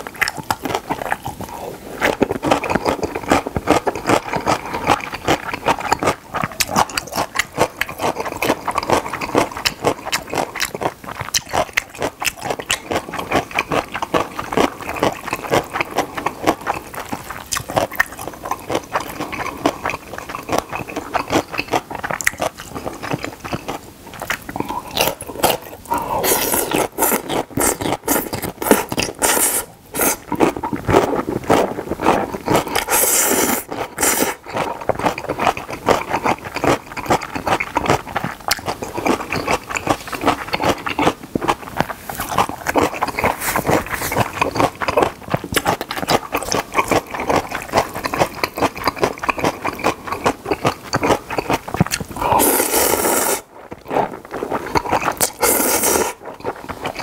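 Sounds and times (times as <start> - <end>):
wet chewing and crunching: 0.0 - 57.0
noodle slurps: 24.3 - 41.0, 41.8 - 49.4, 51.4 - 57.0.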